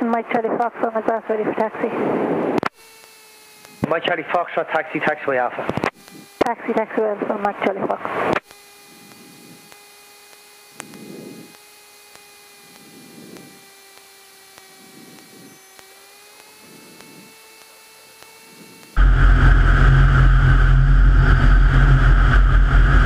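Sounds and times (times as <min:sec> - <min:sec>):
thin steady tones: 0:02.7 - 0:19.0.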